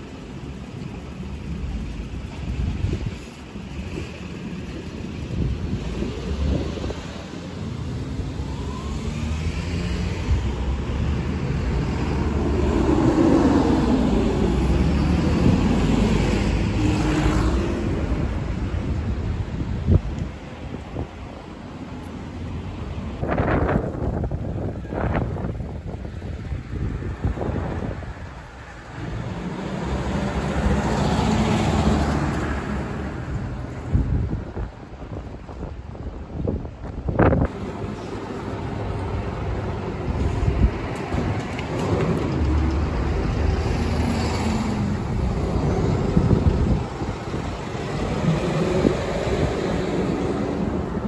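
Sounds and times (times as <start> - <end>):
garbage trucks driving past: 0.1 - 19.8, 20.4 - 35.1, 37.3 - 51.0
wind buffeting microphone: 0.4 - 51.0.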